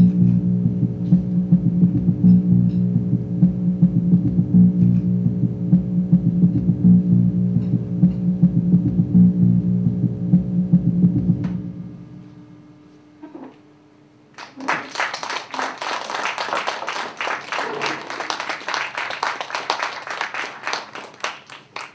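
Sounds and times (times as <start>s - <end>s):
audience applause: 14.4s - 21.9s.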